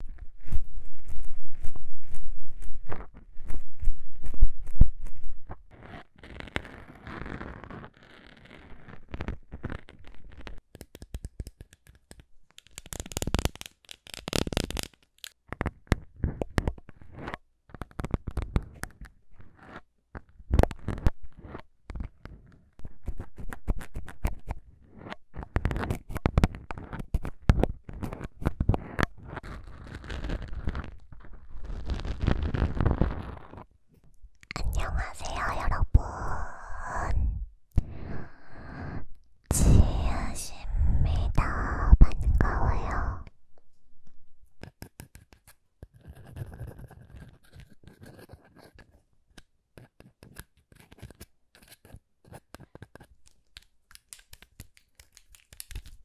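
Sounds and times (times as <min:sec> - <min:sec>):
syringe scraping foam microphone: 0:00.0 - 0:10.6, 0:15.6 - 0:43.4, 0:45.9 - 0:49.0
fingernails scratching foam: 0:05.5 - 0:10.6, 0:27.9 - 0:33.7.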